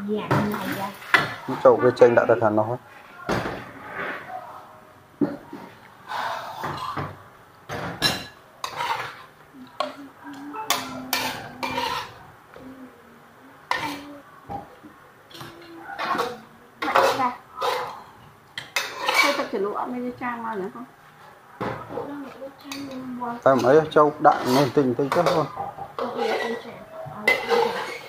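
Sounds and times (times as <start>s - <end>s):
ladle scraping wok: 6.0s - 7.0s, 8.6s - 9.3s, 10.8s - 12.2s, 18.8s - 19.6s, 24.2s - 25.4s, 26.0s - 26.7s, 27.3s - 28.0s
cutlery clinking on plates: 6.4s - 9.3s, 10.7s - 12.2s, 15.3s - 19.5s, 22.7s - 26.6s, 27.2s - 28.0s.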